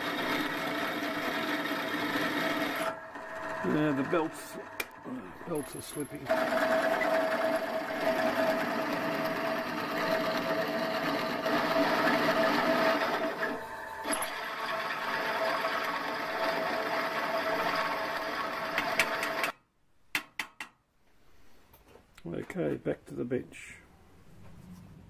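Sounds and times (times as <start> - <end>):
pillar drill drilling metal: 0.0 - 19.5.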